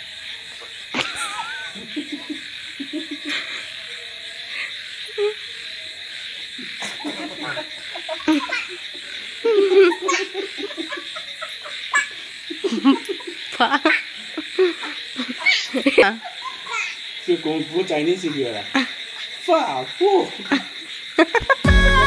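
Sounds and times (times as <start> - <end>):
night frogs and insects: 0.0 - 22.0
people laughing: 0.9 - 5.3, 6.6 - 16.7, 20.3 - 21.7.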